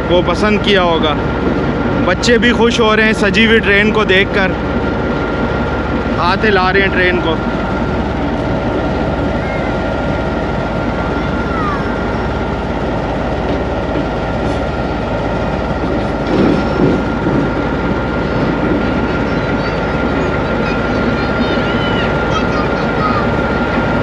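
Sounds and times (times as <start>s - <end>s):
locomotive rumble: 0.0s - 24.0s
faint train squeaks: 8.2s - 12.6s, 14.4s - 23.7s.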